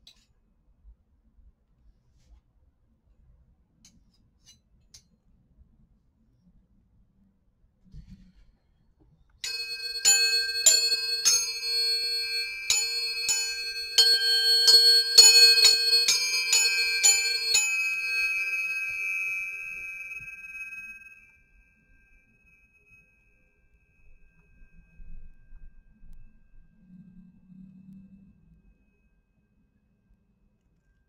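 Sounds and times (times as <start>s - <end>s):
tuning forks clinking and ringing: 9.4s - 25.8s.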